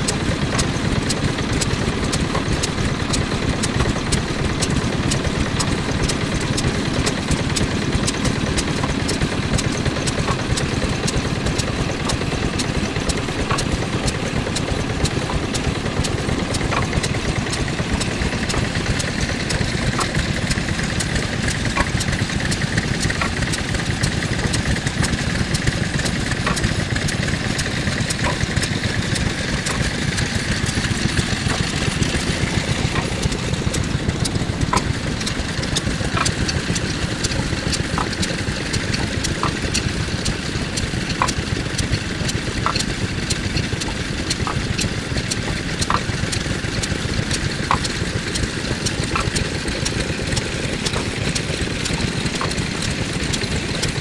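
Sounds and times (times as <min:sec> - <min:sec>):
diesel engine running: 0:00.0 - 0:54.0
pestle mechanism knocking: 0:00.0 - 0:54.0.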